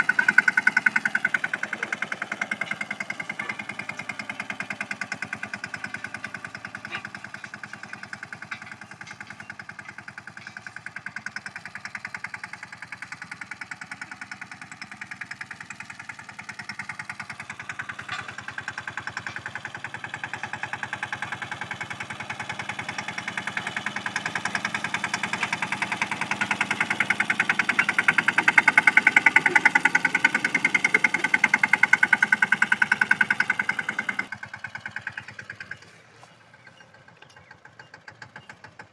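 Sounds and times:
tractor engine running: 0.0 - 38.9.

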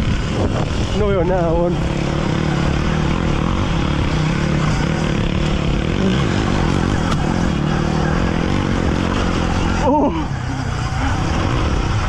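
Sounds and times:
dirt bike trail noise: 0.0 - 12.0
low motor drone: 0.0 - 12.0.

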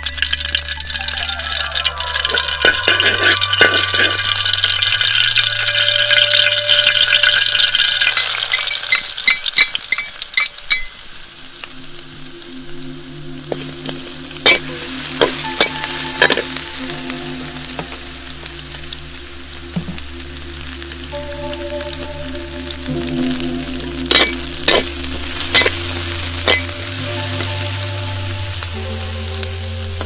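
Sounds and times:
sizzling in hot oil: 0.0 - 30.0
metal spatula scraping wok: 14.4 - 16.6, 24.1 - 27.6.

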